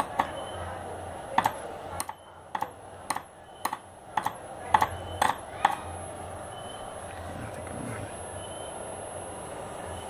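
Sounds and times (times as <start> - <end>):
faint high whine: 4.9 - 10.0.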